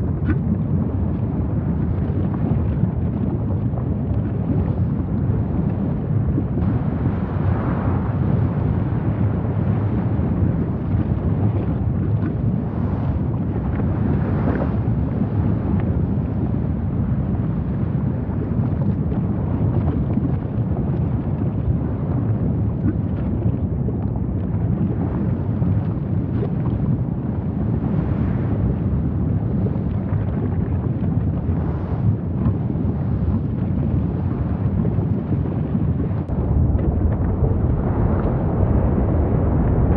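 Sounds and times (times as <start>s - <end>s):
volcanic eruption rumble: 0.0s - 39.9s
faint crackles: 17.9s - 39.9s.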